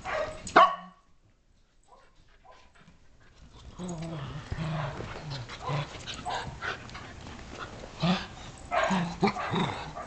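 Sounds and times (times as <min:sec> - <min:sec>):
paws scuffling on tile floor: 0:01.2 - 0:09.7
dogs growling and snarling: 0:03.5 - 0:10.0.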